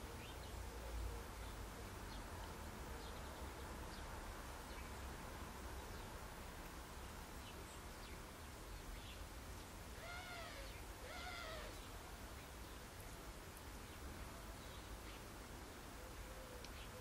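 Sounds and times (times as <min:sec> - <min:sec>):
finch long rising calls: 0:10.0 - 0:11.8.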